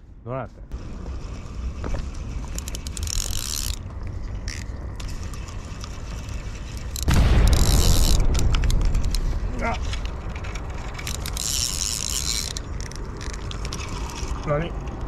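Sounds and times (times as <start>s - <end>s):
fishing reel gears whirring: 2.3s - 3.8s, 4.4s - 8.4s, 10.8s - 14.6s.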